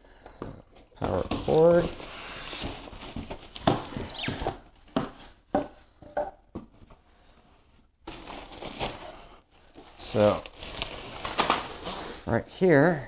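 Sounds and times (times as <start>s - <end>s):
plastic rustle: 8.1s - 12.3s.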